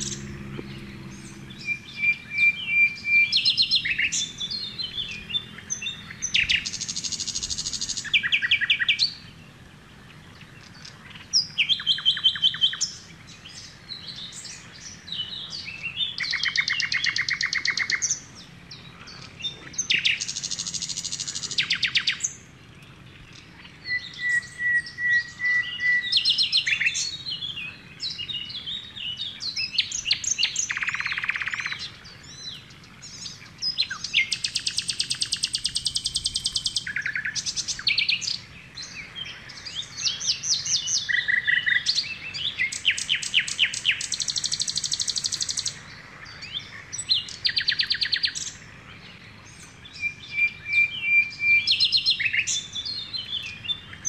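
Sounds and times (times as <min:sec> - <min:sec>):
bird trills: 0:00.0 - 0:09.2, 0:23.6 - 0:45.8, 0:49.5 - 0:54.0
birds chirping: 0:00.0 - 0:54.0.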